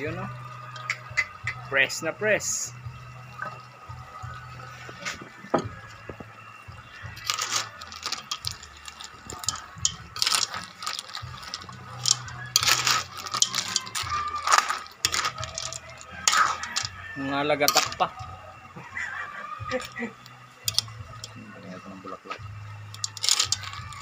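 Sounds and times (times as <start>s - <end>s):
ladle scraping metal wok: 7.2s - 18.1s, 20.7s - 21.3s, 22.9s - 24.0s.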